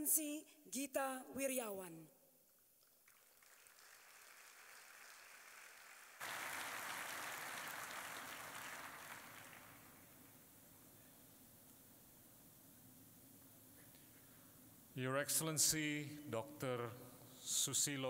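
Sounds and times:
audience applauding: 2.8s - 10.3s.

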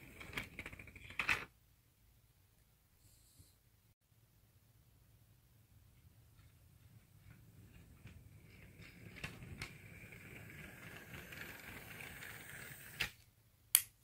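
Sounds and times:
model train running on track: 8.0s - 13.0s.

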